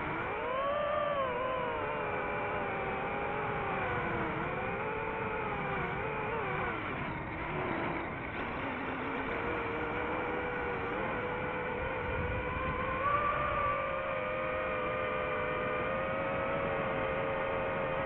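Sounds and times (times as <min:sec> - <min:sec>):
drone motors whining: 0:00.0 - 0:18.0.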